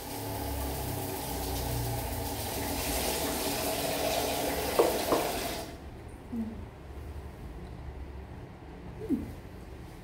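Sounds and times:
tap water running into bowl: 0.0 - 5.8.

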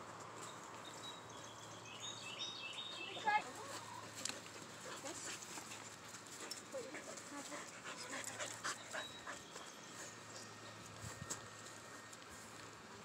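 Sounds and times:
dog panting: 3.8 - 10.5.

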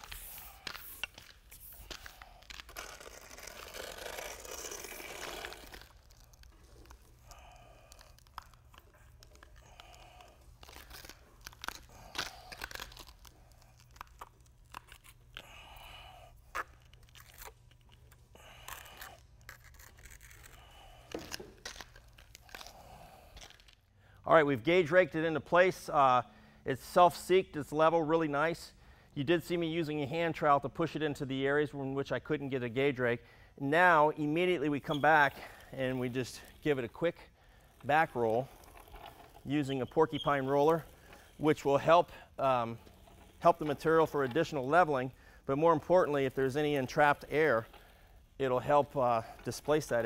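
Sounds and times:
trowel scraping resin on concrete: 0.0 - 15.5, 34.8 - 50.0.

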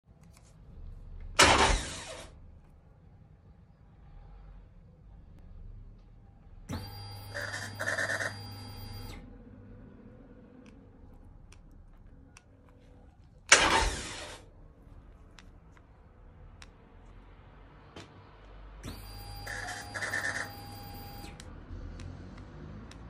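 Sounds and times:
electric starter whir: 1.4 - 2.4, 13.4 - 14.5, 18.7 - 23.0
loud harsh burst: 13.5 - 14.4.

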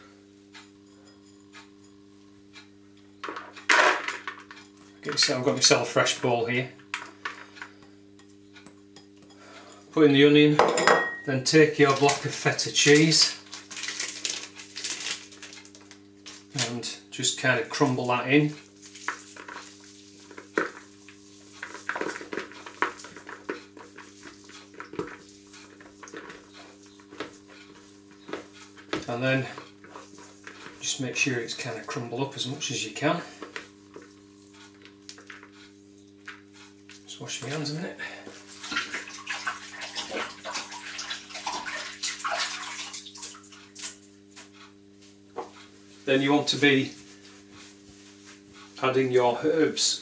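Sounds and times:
cheese crumbled by hand: 11.9 - 16.7.

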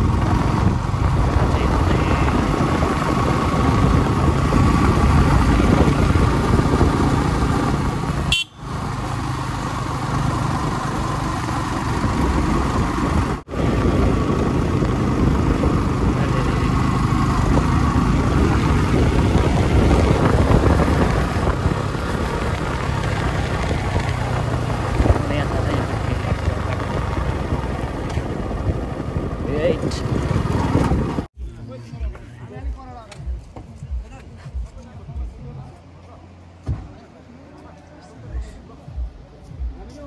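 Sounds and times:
motorcycle engine running: 0.0 - 31.3
road and wind noise: 0.0 - 40.0.

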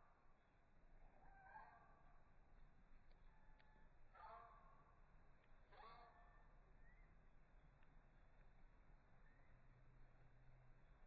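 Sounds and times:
faint tick: 3.0 - 3.8.

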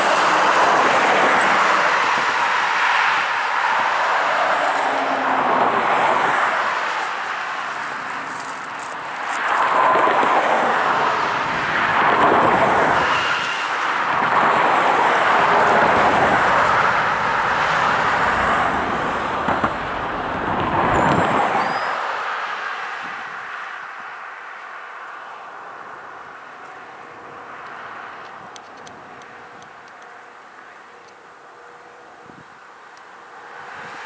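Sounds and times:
diesel locomotive running: 0.0 - 21.9
brief high squeal: 20.9 - 22.1.

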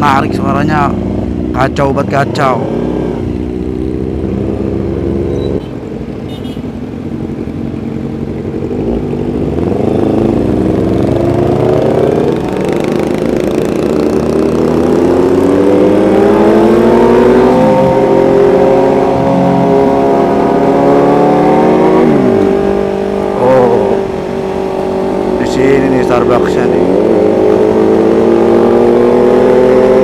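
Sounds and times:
motorcycle engines accelerating: 0.0 - 5.7, 7.0 - 30.0.

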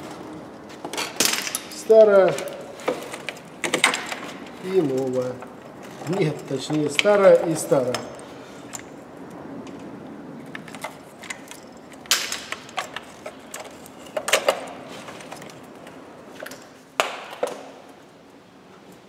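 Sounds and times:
clicks and knocks of parts handled: 0.7 - 9.0, 10.5 - 18.0.

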